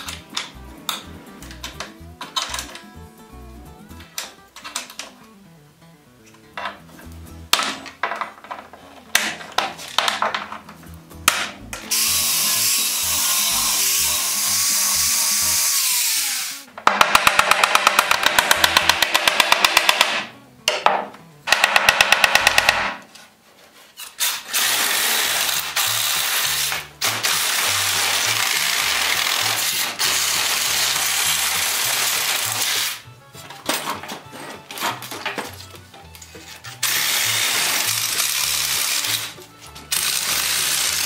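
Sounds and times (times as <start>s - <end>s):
reciprocating saw running: 11.8s - 16.7s, 24.3s - 33.0s, 36.8s - 41.0s
power tools running: 11.8s - 20.1s, 24.5s - 33.0s, 36.8s - 41.0s
sharp knocks and clicks: 16.8s - 23.1s.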